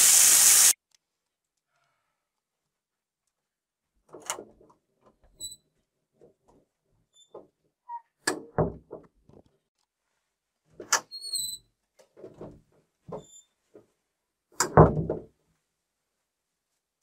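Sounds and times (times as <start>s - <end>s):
door squeak: 11.0s - 11.7s, 13.1s - 13.6s
knocks and thuds on wooden door: 14.7s - 15.3s.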